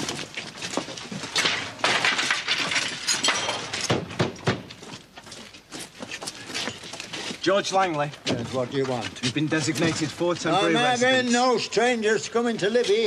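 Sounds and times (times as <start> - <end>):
junk clattering and clinking: 1.3 - 4.6.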